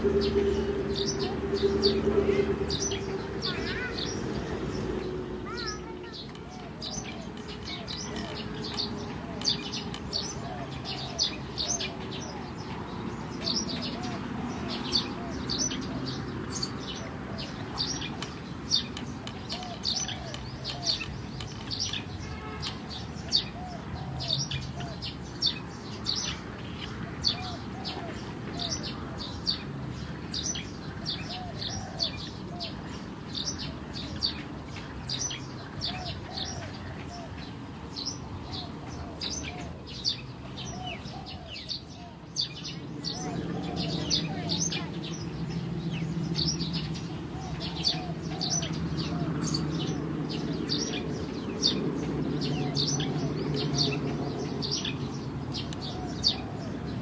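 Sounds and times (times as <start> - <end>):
soft low bird calls: 0.0 - 25.5
birds chirping: 0.0 - 57.0.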